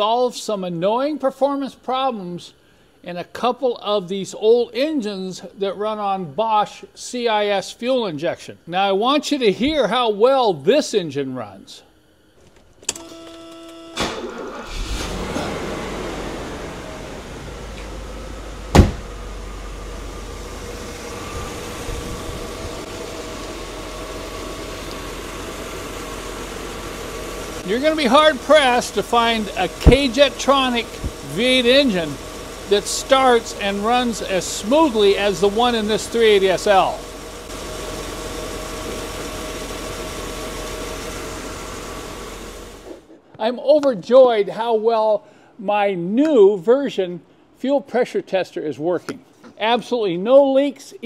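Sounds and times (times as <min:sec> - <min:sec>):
faint steady whine: 0:00.0 - 0:14.7, 0:15.8 - 0:43.4
car engine idling: 0:14.2 - 0:43.0
sharp loud thump: 0:18.7 - 0:19.2.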